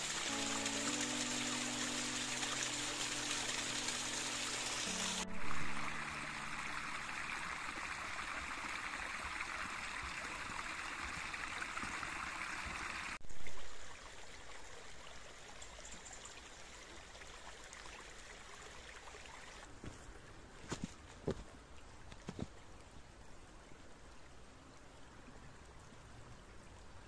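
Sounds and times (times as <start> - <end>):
stream rushing over rocks: 0.0 - 13.2.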